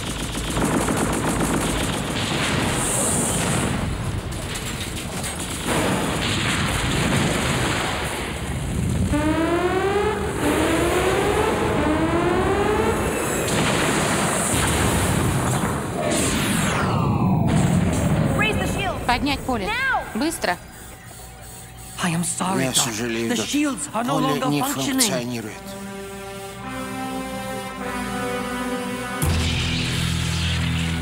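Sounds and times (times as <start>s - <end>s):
explosions rumbling: 0.8s - 9.3s, 12.7s - 20.4s
rising electronic zaps: 2.4s - 23.4s, 25.8s - 31.0s
cartoon gunfire: 12.7s - 20.1s.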